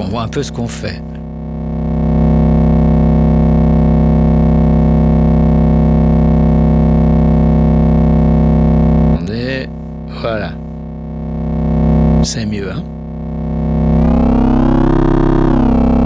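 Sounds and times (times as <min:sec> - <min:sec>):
synthesizer low drone: 0:13.0 - 0:16.0.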